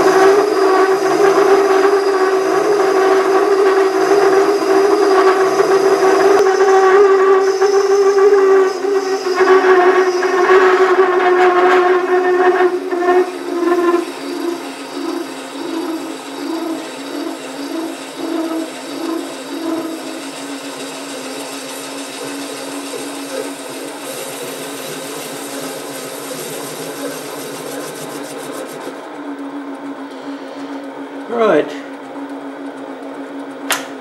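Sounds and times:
lathe cutting metal with ringing squeal: 0:00.0 - 0:29.0.

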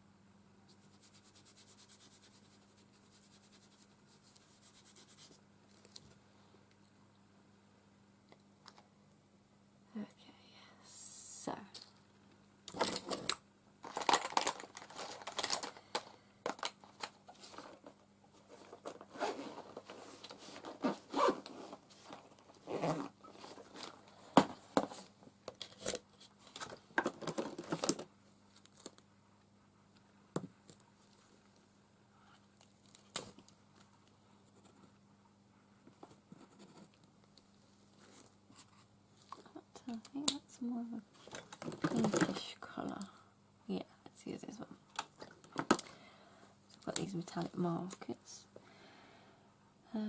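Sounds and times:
art supplies rustling and scraping: 0:12.7 - 0:29.0, 0:35.8 - 0:40.0, 0:41.0 - 0:43.0.

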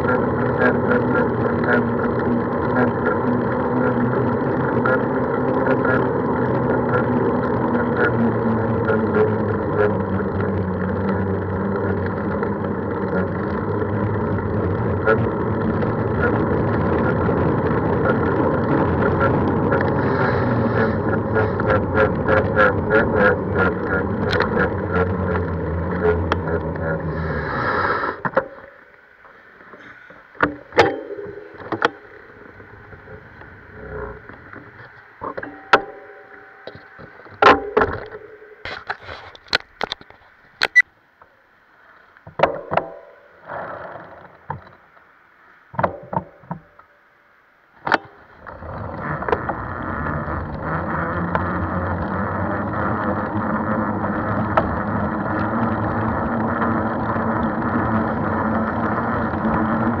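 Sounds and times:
tyre noise: 0:00.0 - 0:40.8, 0:47.8 - 1:00.0
bicycle knocks and rattles: 0:30.4 - 0:32.1, 0:42.3 - 0:43.2.

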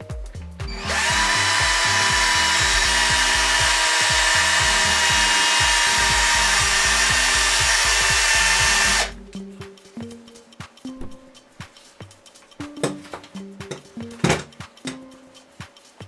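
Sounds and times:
cordless drill motor whine: 0:00.7 - 0:09.2.

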